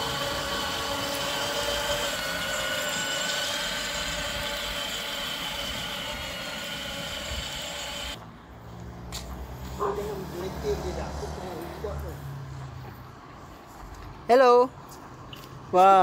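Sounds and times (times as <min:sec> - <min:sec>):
toy buggy motor whine: 0:00.0 - 0:08.2.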